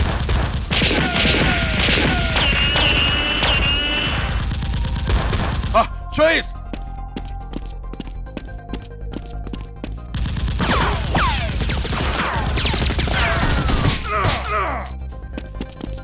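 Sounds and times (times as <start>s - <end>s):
gunfire sound effects: 0.0s - 5.9s, 10.2s - 14.5s.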